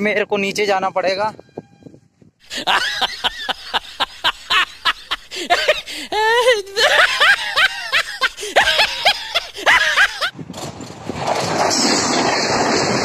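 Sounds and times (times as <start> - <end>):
person laughing: 2.5 - 10.3.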